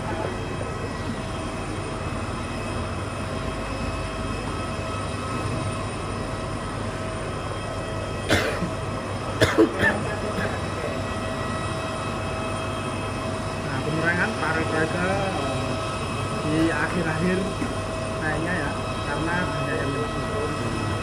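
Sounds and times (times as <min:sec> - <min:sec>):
held whining tones: 0:00.0 - 0:21.0
jet airliner machinery drone: 0:00.0 - 0:21.0.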